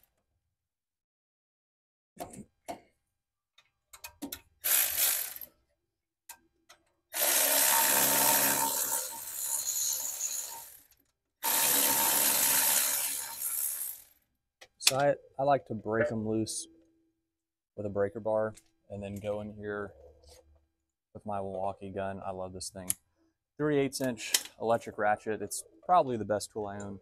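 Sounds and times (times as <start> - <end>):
electric ratchet spinning: 4.6 - 5.5, 7.2 - 14.2.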